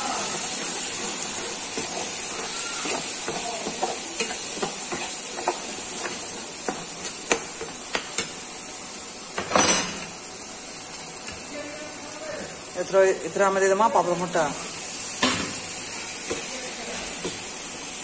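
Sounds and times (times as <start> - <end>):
oil sizzling: 0.0 - 18.0
spoon scraping metal pan: 1.4 - 6.2.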